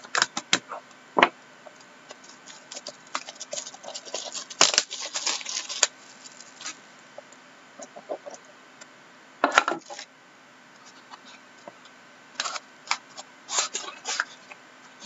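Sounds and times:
plastic film crinkling: 2.1s - 6.9s, 12.4s - 14.6s.

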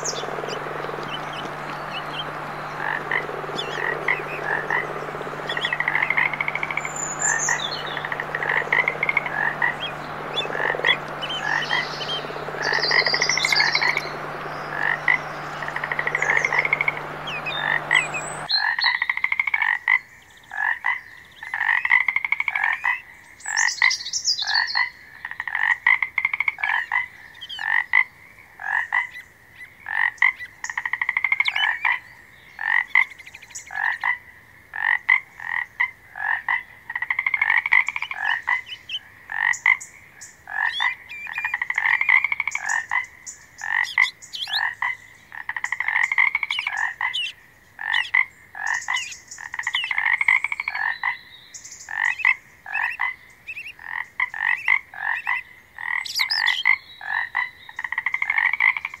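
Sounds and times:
pulsed frog trills: 0.0s - 18.5s
frogs croaking: 0.0s - 59.0s.

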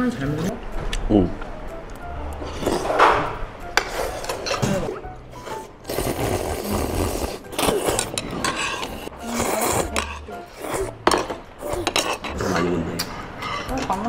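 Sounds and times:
background music: 0.0s - 14.0s
people slurping noodles: 2.4s - 3.0s, 3.8s - 13.1s.

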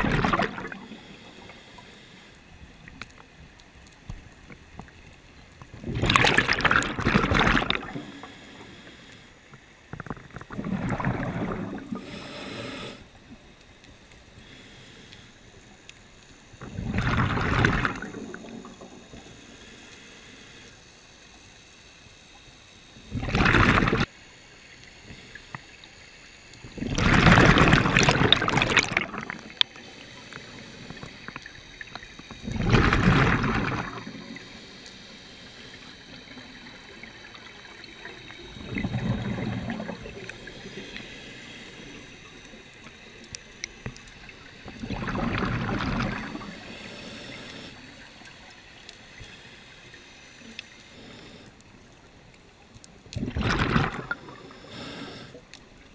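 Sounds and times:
exhaled bubbles underwater: 0.0s - 1.6s, 5.7s - 8.4s, 10.0s - 12.3s, 16.6s - 19.4s, 23.0s - 24.1s, 26.7s - 29.9s, 30.5s - 34.6s, 35.8s - 42.9s, 43.9s - 48.6s, 53.1s - 54.9s
regulator hiss: 11.7s - 17.0s, 17.8s - 23.2s, 33.3s - 45.0s, 46.0s - 51.9s.

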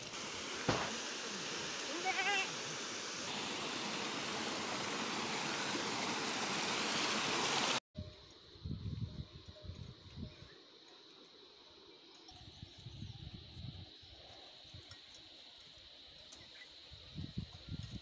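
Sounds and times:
waterfall and stream rushing: 0.0s - 7.8s.

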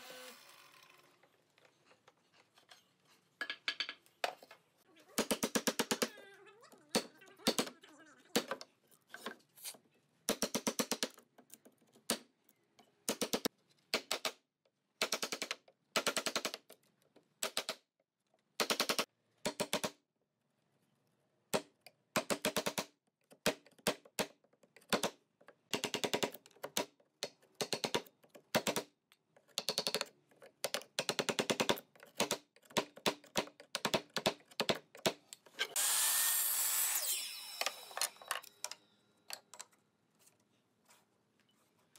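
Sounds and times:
electric mitre saw: 0.0s - 1.2s, 35.7s - 38.3s.

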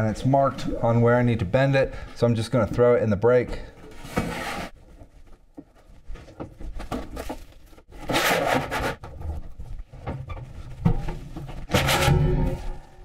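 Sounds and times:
sheet metal scraping: 11.6s - 13.0s.

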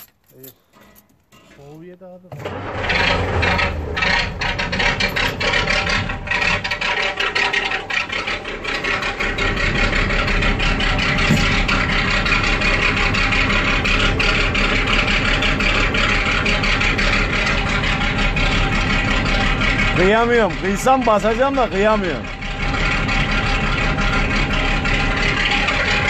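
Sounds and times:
diesel truck engine idling: 1.7s - 26.0s.

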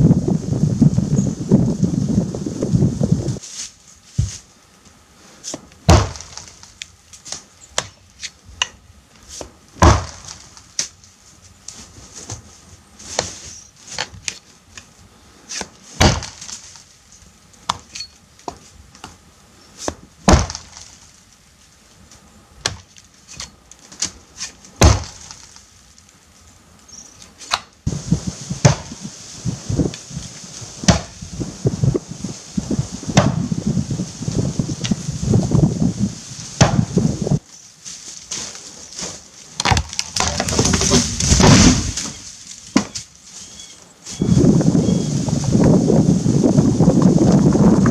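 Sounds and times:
rustling: 3.2s - 45.6s
axe chopping into tree trunk: 5.5s - 6.7s, 9.4s - 10.9s, 15.5s - 16.6s, 19.8s - 20.9s, 22.6s - 25.5s, 28.6s - 29.0s, 30.8s - 31.2s, 33.2s - 33.4s, 36.6s - 36.9s, 39.6s - 43.1s.

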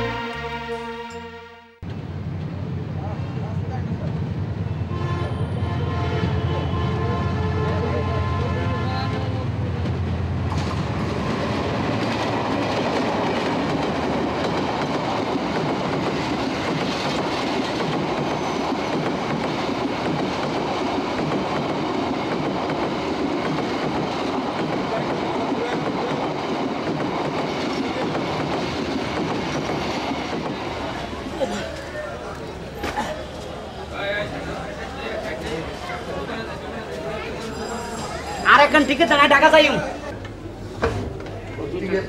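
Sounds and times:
background music: 0.0s - 1.8s
train running on rails: 0.0s - 42.0s.

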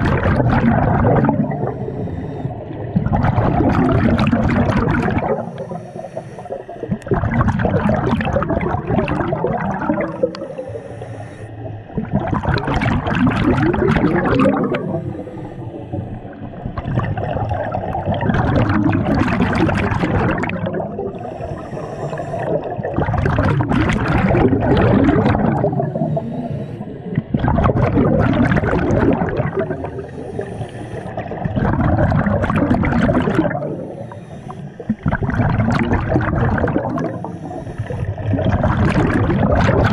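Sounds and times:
exhaled bubbles rushing: 0.0s - 10.8s, 11.6s - 39.9s
diver breathing through regulator: 0.9s - 2.9s, 4.1s - 7.2s, 9.2s - 12.0s, 13.6s - 17.2s, 20.7s - 23.0s, 24.3s - 27.4s, 28.8s - 31.6s, 33.3s - 35.2s, 36.6s - 38.4s.

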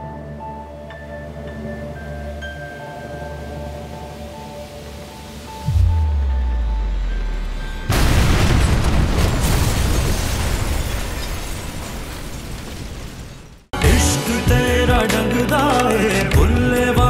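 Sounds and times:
deep low drone: 5.7s - 8.0s
loud explosion: 7.9s - 13.6s.

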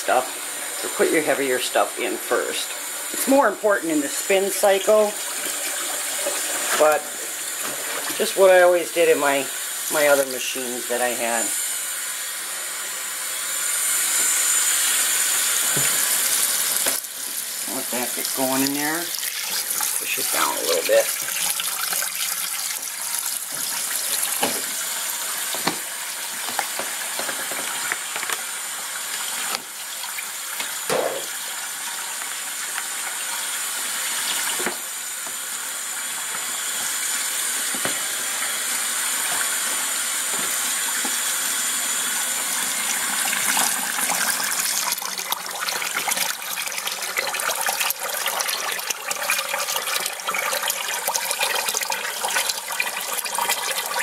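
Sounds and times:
water running from a hose: 0.0s - 54.0s.

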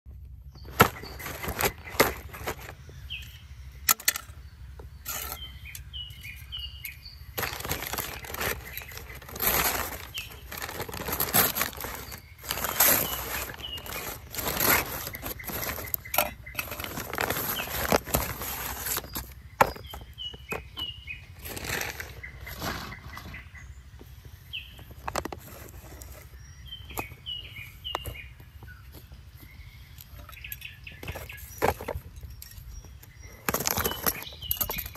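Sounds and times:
birds chirping: 0.1s - 34.9s
paper bag crumpling: 0.7s - 2.7s, 7.4s - 19.3s.

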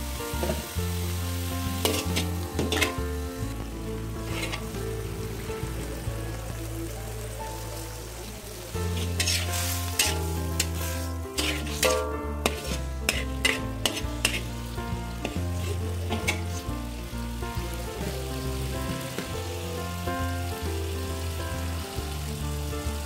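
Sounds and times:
backing music with bass line: 0.0s - 23.0s
vegetables sizzling: 0.0s - 23.0s
metal spatula scraping a wok: 0.4s - 3.3s, 4.2s - 4.8s, 8.8s - 16.8s.

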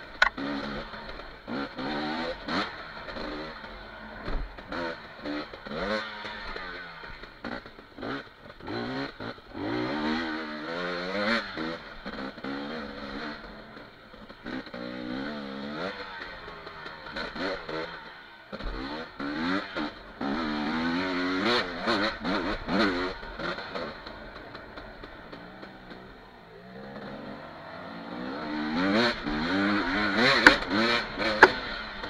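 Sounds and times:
dirt bike engine revving: 0.0s - 32.0s
sharp knocks from bumpy ground: 30.1s - 31.7s.

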